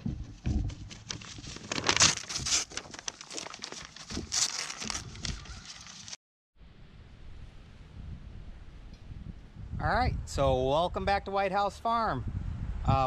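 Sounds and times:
low thumps: 0.0s - 1.4s
paper crinkling and tearing: 0.8s - 6.2s.

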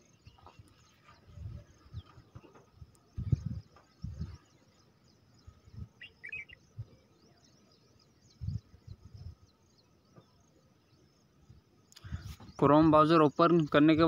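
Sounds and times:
birds chirping: 0.0s - 14.0s
warbling bird call: 6.0s - 6.6s.

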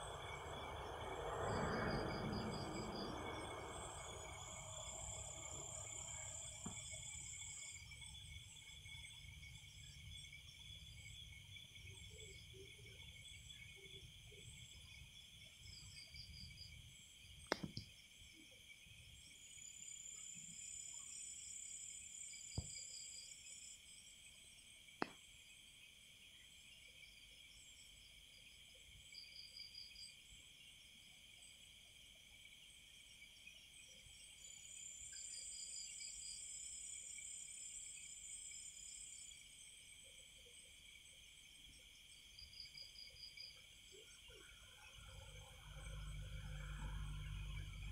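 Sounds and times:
short insect chirping bursts: 0.0s - 14.7s.

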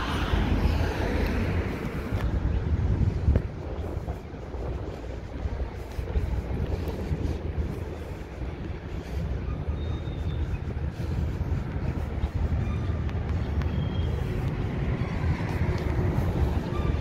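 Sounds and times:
low rumble of traffic: 0.0s - 17.0s.

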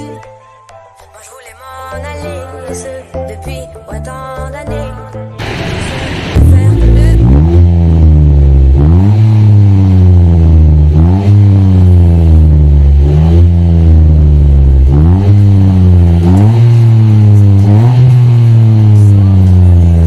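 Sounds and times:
car engine revving: 5.4s - 20.0s.

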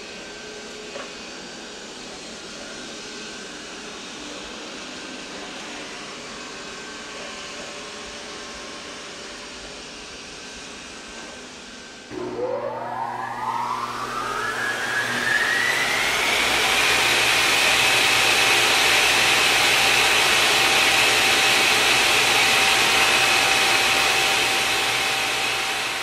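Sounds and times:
high whining tone: 12.1s - 18.2s.

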